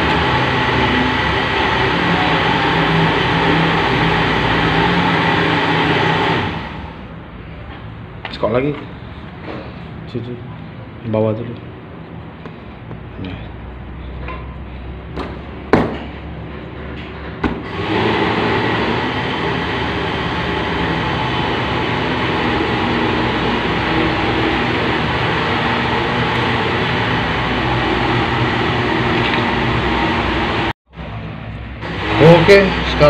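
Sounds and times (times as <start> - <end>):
machine running noise: 0.0 - 7.8, 15.6 - 33.0.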